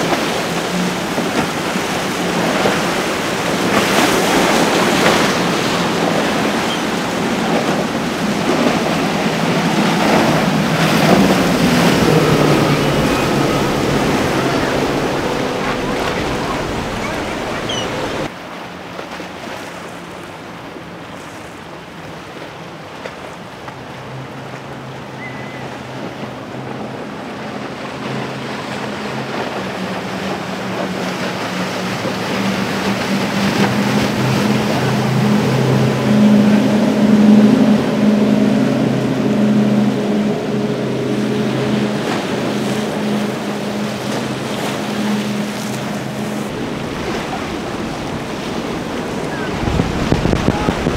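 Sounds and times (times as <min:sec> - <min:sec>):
outboard motors droning: 0:00.0 - 0:50.9
spray and wake rushing: 0:00.0 - 0:50.9
wind noise on microphone: 0:32.0 - 0:50.9.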